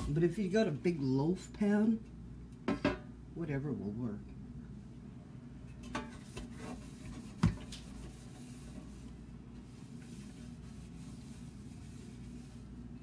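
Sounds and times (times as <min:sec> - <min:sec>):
towel rubbing on a pan: 0:06.2 - 0:13.0.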